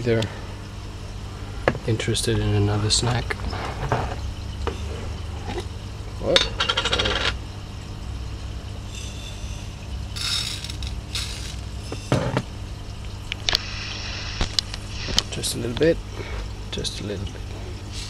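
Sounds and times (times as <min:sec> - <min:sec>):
pump humming: 0:00.0 - 0:18.0.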